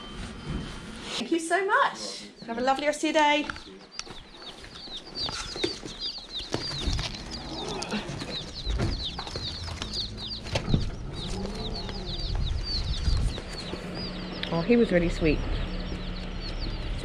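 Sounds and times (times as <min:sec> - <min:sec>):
baby chicks peeping: 0:02.3 - 0:17.0
low rumble: 0:06.9 - 0:17.0.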